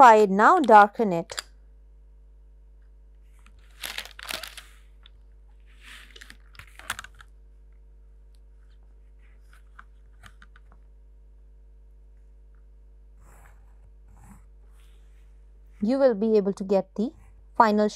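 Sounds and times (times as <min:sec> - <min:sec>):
pencil scratching on paper: 0:13.2 - 0:14.9.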